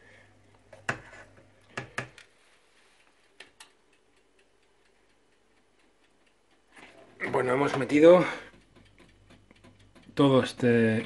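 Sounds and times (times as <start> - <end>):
oven dial clicking: 3.4 - 11.0.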